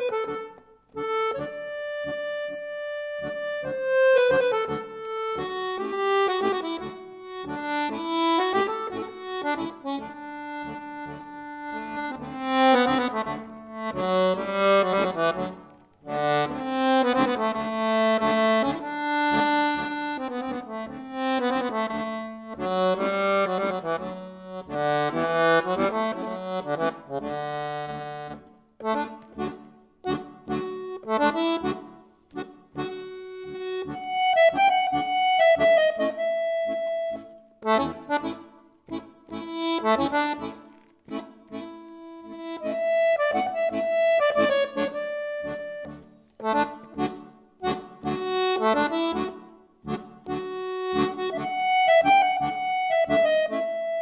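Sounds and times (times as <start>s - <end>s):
piano accordion playing: 0.0s - 54.0s.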